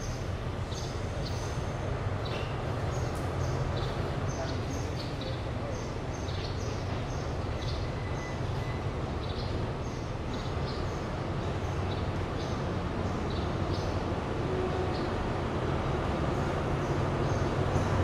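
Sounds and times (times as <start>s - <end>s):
small birds chirping: 0.0s - 14.0s
diesel train rumbling: 0.0s - 18.0s.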